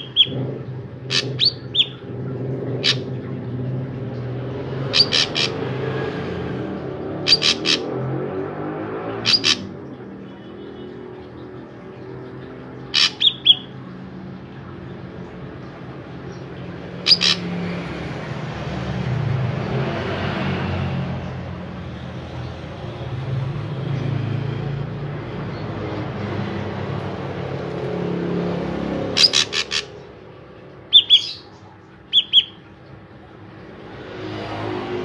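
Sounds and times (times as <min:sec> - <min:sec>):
bird calling sharp notes: 0:00.0 - 0:02.2, 0:04.9 - 0:05.6, 0:07.2 - 0:07.9, 0:09.2 - 0:09.7, 0:12.9 - 0:13.8, 0:17.0 - 0:17.5, 0:29.0 - 0:30.1, 0:30.7 - 0:32.7.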